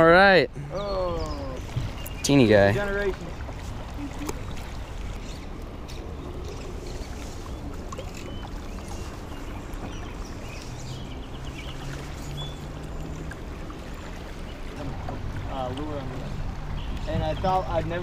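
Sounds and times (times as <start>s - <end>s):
river current rushing: 0.6s - 18.0s.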